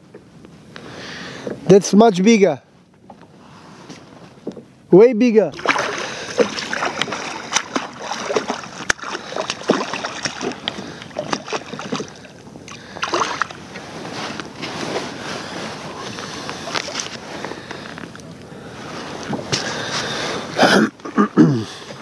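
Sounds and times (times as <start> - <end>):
water splashing: 5.5 - 14.2.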